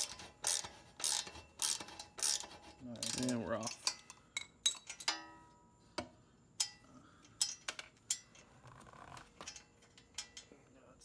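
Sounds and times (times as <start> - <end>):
wrench clicking on metal bolts: 0.0 - 5.4, 6.6 - 8.5, 9.4 - 10.6.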